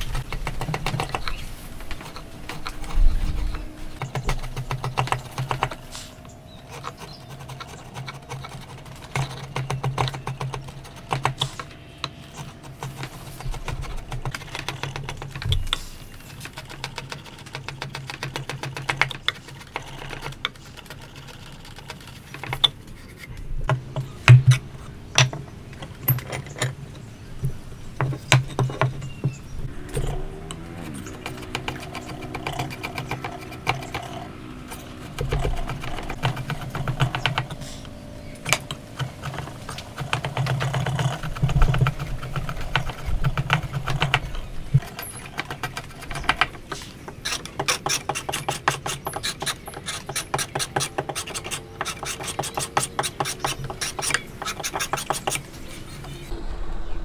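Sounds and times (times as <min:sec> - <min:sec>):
chisel scraping hardwood: 0:38.5 - 0:55.5.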